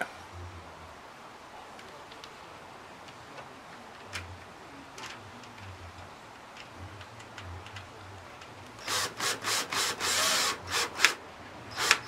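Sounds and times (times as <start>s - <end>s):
cordless drill driving screw: 8.8s - 12.0s.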